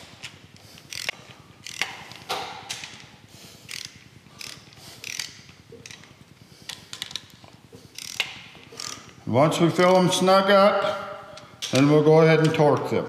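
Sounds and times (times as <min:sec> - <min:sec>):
socket ratchet clicking: 0:00.0 - 0:06.1, 0:07.9 - 0:09.1.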